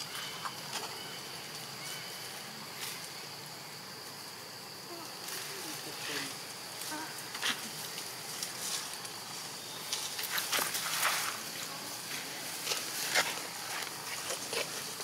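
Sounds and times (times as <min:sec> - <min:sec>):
high insect buzz: 0:00.0 - 0:15.0
leaves and twigs rustling: 0:00.0 - 0:15.0
monkeys scuffling: 0:05.1 - 0:15.0.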